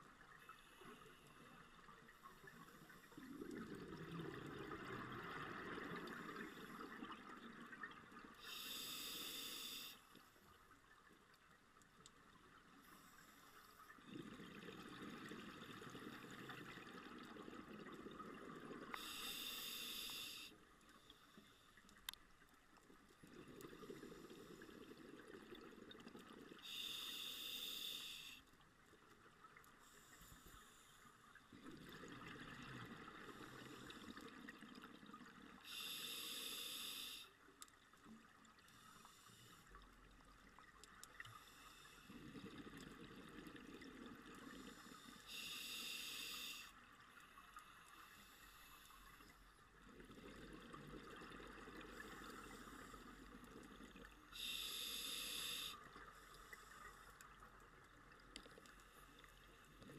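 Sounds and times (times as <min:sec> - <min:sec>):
exhaled bubbles gurgling: 0:02.5 - 0:08.7, 0:14.0 - 0:19.2, 0:31.5 - 0:36.0
regulator inhalation hiss: 0:08.4 - 0:10.1, 0:19.0 - 0:21.7, 0:26.6 - 0:28.4, 0:35.6 - 0:37.4, 0:44.6 - 0:46.8, 0:54.4 - 0:56.8.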